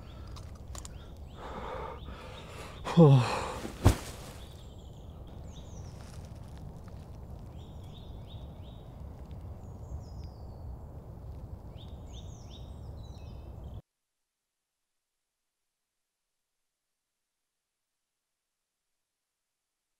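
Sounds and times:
songbirds chirping: 0.0 - 13.8.

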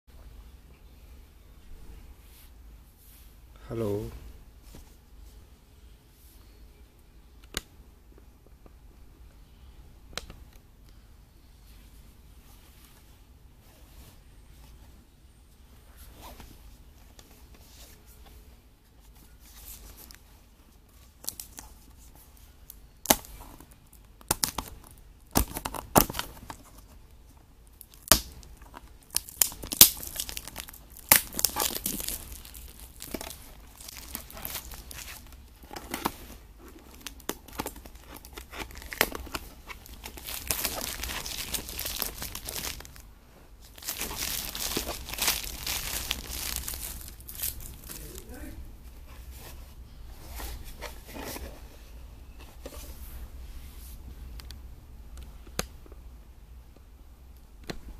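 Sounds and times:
cellophane crinkling: 27.6 - 43.0, 43.6 - 48.4.

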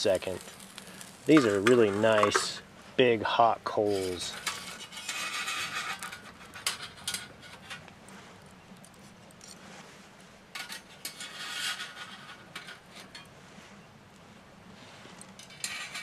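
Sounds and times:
metallic scraping and rattling: 0.0 - 2.6, 3.8 - 7.9, 10.5 - 13.3, 15.2 - 16.0
steel rods clinking: 0.2 - 2.6, 3.9 - 7.9, 15.2 - 16.0.

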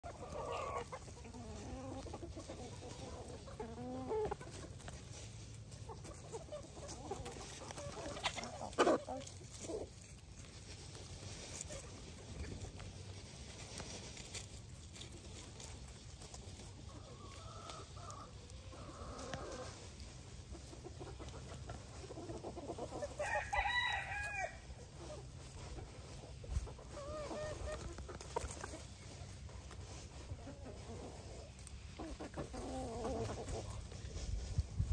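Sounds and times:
chickens clucking: 0.0 - 34.9.

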